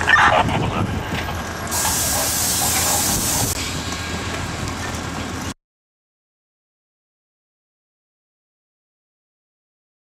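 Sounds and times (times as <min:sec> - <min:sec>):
train low rumble: 0:00.0 - 0:05.6
compressed air hissing: 0:01.7 - 0:03.6.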